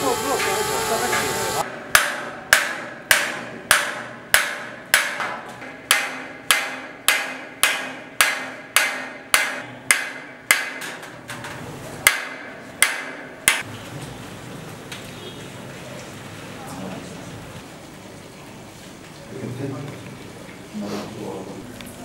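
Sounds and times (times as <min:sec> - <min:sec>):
hammer tapping metal: 0:00.4 - 0:13.7.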